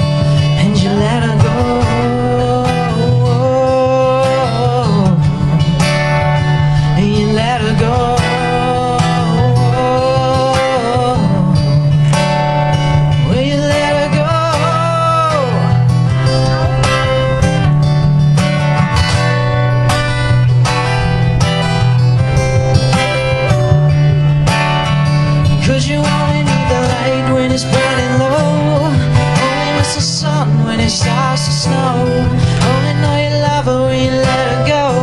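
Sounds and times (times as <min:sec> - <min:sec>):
acoustic guitar picking: 0:00.0 - 0:35.0.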